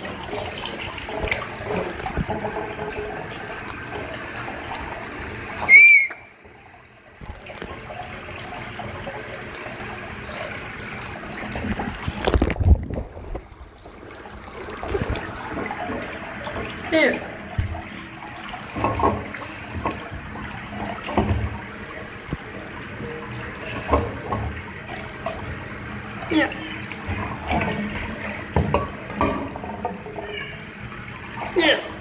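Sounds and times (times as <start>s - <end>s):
bath tap running: 0.0s - 32.0s
loud high squeak: 5.6s - 6.3s.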